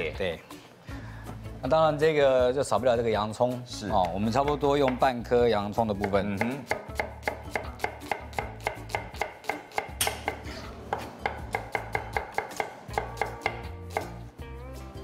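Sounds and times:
knife chopping on wooden board: 6.0 - 14.2.

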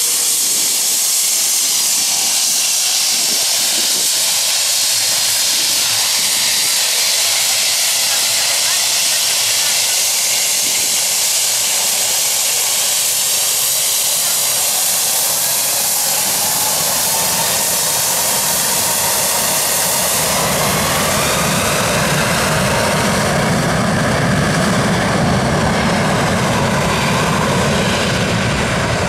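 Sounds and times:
high hiss and whine: 0.0 - 24.2
jet engines spooling up: 0.0 - 29.0.

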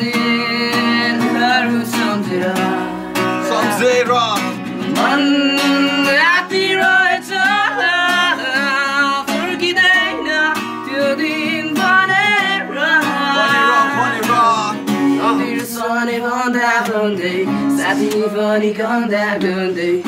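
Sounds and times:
acoustic guitar: 0.0 - 20.0
young man singing: 0.0 - 20.0.

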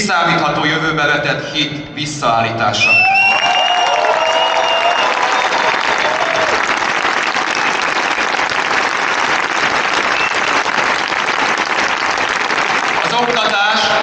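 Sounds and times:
large crowd applauding: 2.8 - 14.0.

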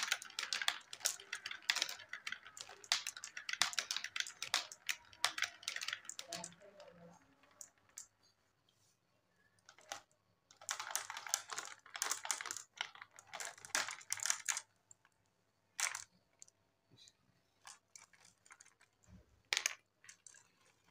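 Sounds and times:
glass marbles clattering: 0.0 - 8.2.

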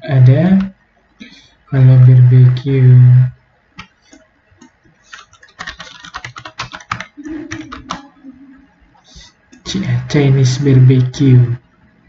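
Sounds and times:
keyboard typing: 3.8 - 11.2.

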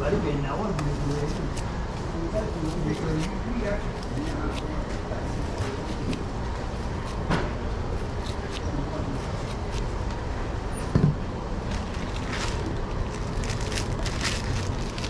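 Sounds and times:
steady background hum: 0.0 - 15.0
knife cutting pineapple: 2.6 - 4.9
plastic bags crinkling: 11.7 - 15.0.

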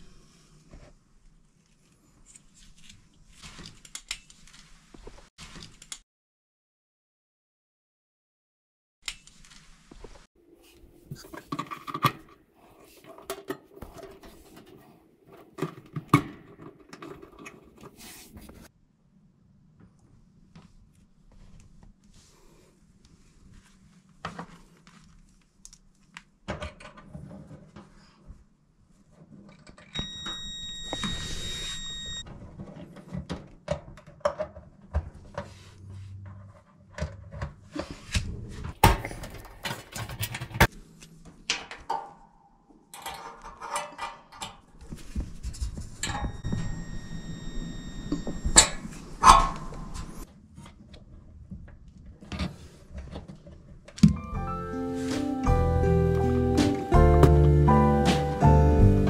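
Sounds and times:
clicks knocks and rattles: 38.8 - 40.7
steady high whine: 46.1 - 50.2.

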